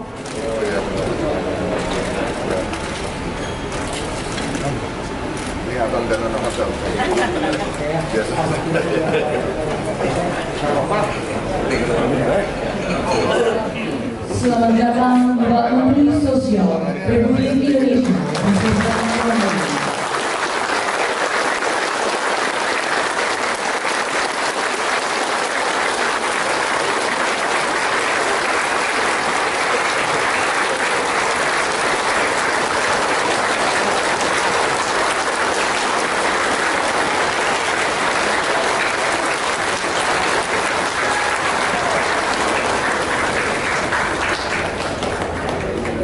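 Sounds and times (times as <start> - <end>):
crowd applauding: 18.0 - 46.0.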